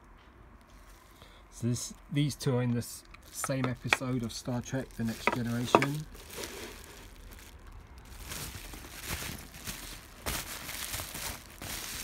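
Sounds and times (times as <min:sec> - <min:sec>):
bubble wrap crinkling: 0:03.2 - 0:12.0.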